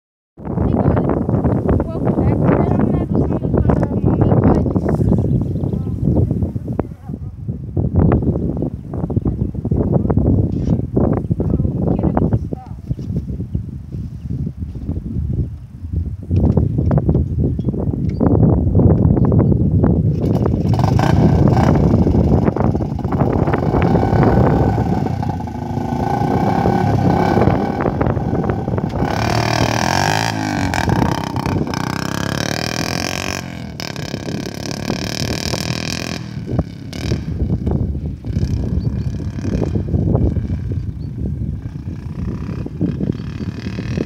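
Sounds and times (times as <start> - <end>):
dirt bike engine revving: 20.2 - 44.0.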